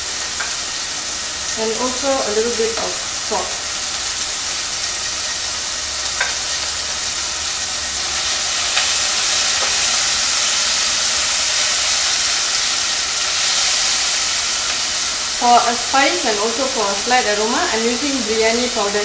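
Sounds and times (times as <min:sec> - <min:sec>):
fruit sizzling in oil: 0:00.0 - 0:19.0.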